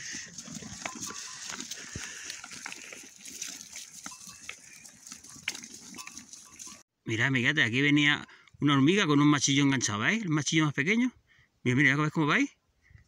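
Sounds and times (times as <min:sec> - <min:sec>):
hooves rustling in dry leaves: 0:00.0 - 0:06.8.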